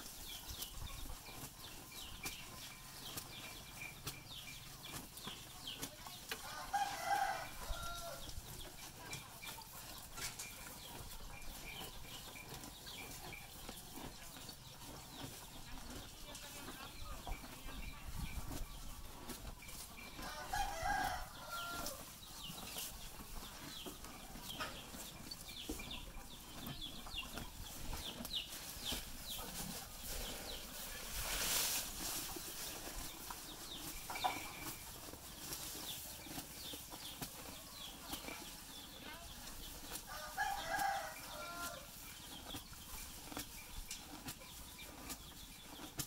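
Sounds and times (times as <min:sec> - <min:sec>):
cow chewing grass: 0:00.0 - 0:46.0
rooster crowing: 0:06.4 - 0:08.2, 0:20.2 - 0:22.0, 0:40.1 - 0:41.8.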